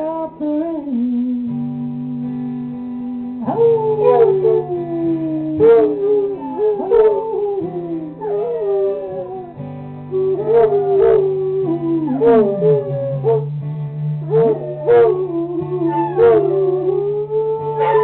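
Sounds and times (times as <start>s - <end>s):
guitar strumming: 0.0s - 18.0s
dog howling: 3.4s - 9.6s, 10.2s - 13.5s, 14.2s - 18.0s.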